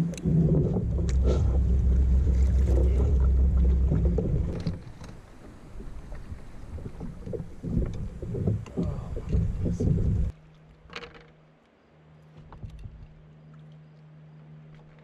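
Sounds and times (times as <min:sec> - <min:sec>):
low rumble of kayak paddling: 0:00.0 - 0:15.0
water and hull sounds: 0:00.0 - 0:15.0
paddle knocks: 0:00.3 - 0:10.3.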